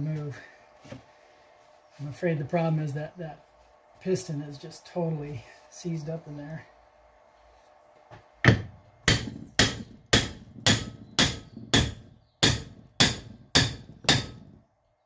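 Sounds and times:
hammer striking metal: 8.4s - 14.6s.

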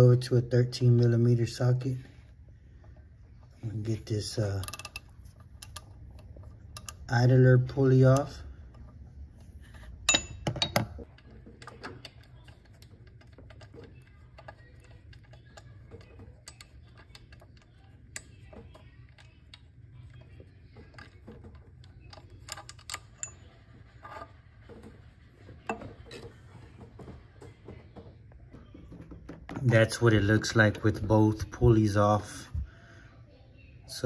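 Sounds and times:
ratchet wrench clicking: 4.6s - 7.1s.

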